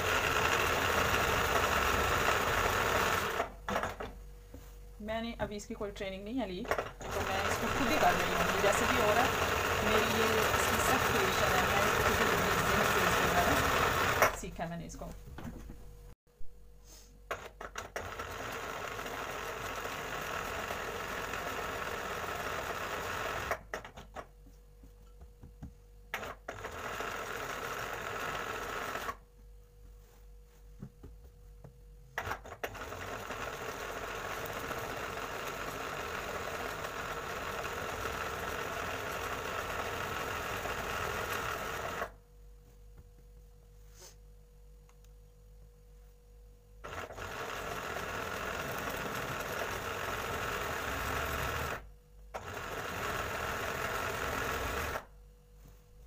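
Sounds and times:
embroidery sewing machine stitching: 0.0 - 4.1, 6.7 - 14.5, 17.3 - 24.0, 26.1 - 29.2, 32.2 - 42.2, 46.8 - 55.1.

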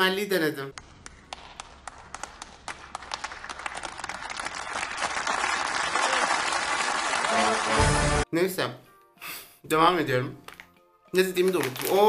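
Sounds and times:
audience applauding: 0.8 - 8.2.

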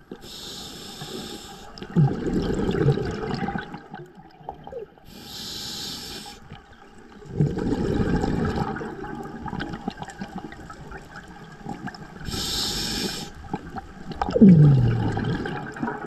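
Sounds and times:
regulator hissing inhale: 0.1 - 1.8, 5.1 - 6.5, 12.2 - 13.4
exhaled bubbles rumbling: 1.8 - 5.0, 6.5 - 12.6, 13.4 - 16.0.

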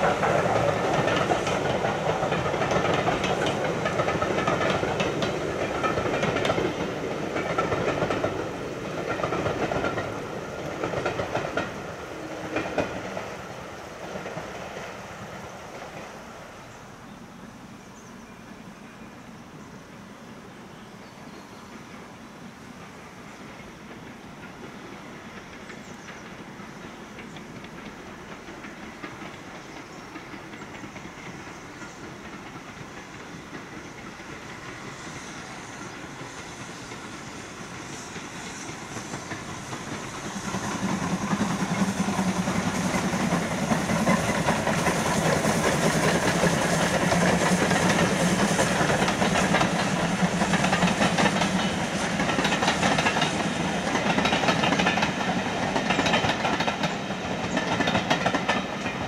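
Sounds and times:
steam locomotive passing: 0.0 - 59.0
train coaches rolling past: 0.0 - 59.0.

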